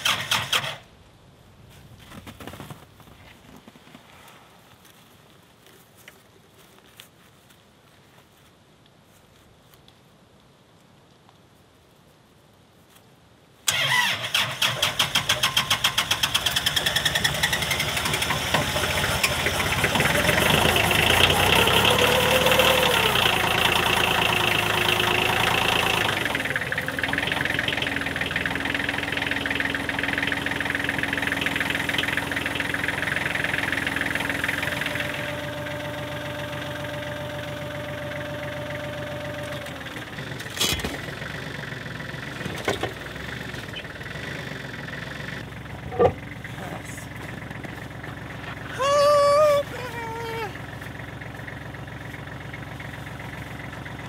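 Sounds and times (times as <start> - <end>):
tractor diesel engine running: 0.0 - 1.0, 13.7 - 54.0.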